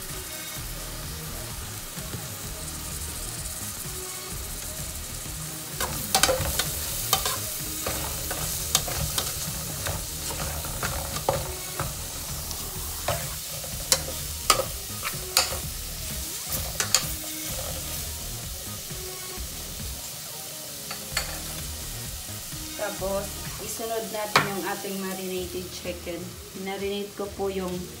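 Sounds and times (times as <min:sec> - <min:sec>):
onions sizzling in a pot: 0:00.0 - 0:28.0
metal spoon scraping and clinking pot: 0:05.8 - 0:15.7, 0:16.5 - 0:17.9, 0:20.9 - 0:21.5.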